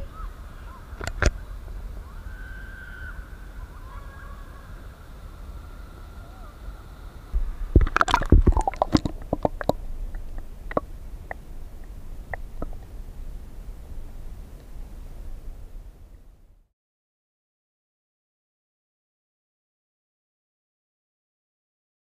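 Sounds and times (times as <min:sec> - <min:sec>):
low rumble: 0:04.4 - 0:16.7
splashes and knocks: 0:07.4 - 0:10.8
water lapping against camera: 0:07.4 - 0:13.0.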